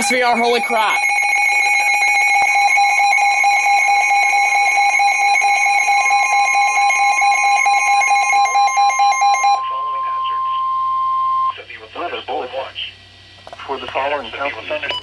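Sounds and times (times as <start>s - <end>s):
shrill pulsing alert beep: 0.0s - 11.5s
steady high tone: 0.0s - 11.5s.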